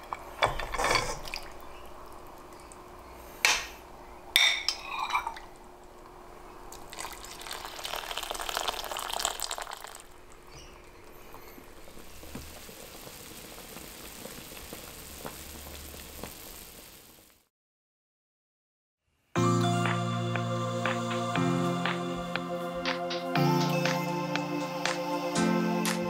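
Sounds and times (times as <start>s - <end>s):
faint steady hiss: 0.0s - 17.5s
liquid pouring into pot: 6.7s - 10.4s.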